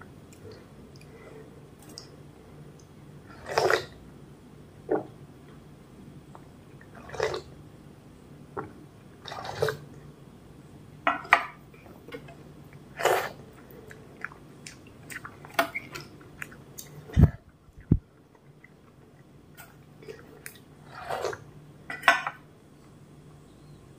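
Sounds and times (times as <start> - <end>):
wet slurps and mouth sounds: 3.4 - 4.0.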